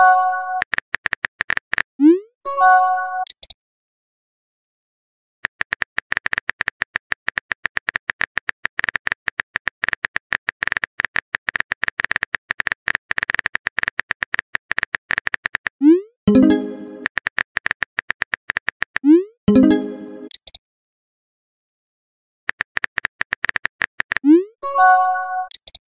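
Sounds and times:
phone keyboard typing clicks: 0.6 - 1.9, 3.2 - 3.6, 5.4 - 19.1, 20.2 - 20.6, 22.5 - 24.4, 25.5 - 25.8.

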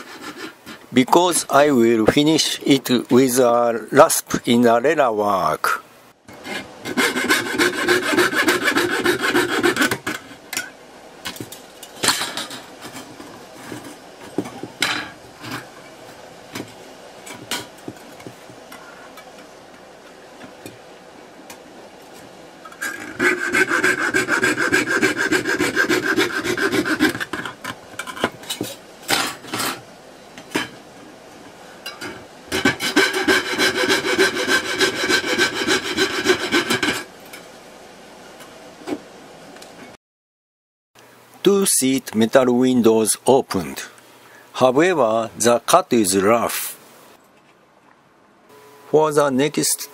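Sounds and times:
fretsaw cutting brass sheet: 6.4 - 10.5, 22.8 - 27.6, 32.5 - 37.1.

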